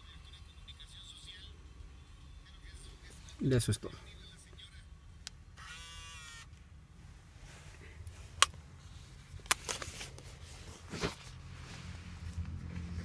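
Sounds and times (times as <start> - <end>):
low steady rumble: 0.0 - 13.0
tape mechanism whirring: 5.6 - 6.5.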